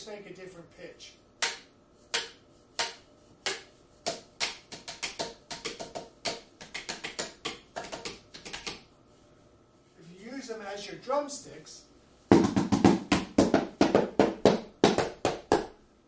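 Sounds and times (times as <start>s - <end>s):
cardboard tubes drumming: 1.4s - 8.9s, 12.3s - 15.7s.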